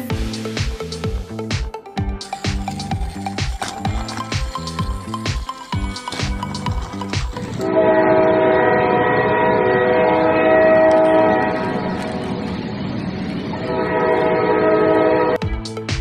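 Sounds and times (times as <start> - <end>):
train rumbling: 5.8 - 15.9
train horn chord: 7.6 - 12.6, 13.5 - 15.4.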